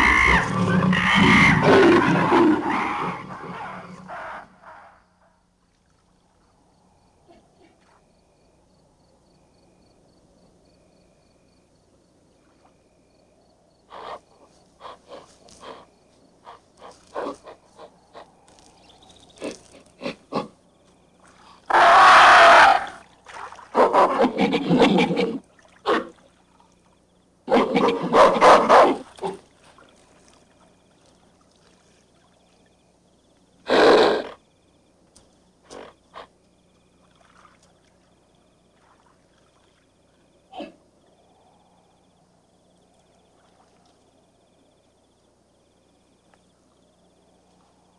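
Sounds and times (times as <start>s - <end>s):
chimpanzees screaming: 0.0s - 4.8s, 21.7s - 23.0s.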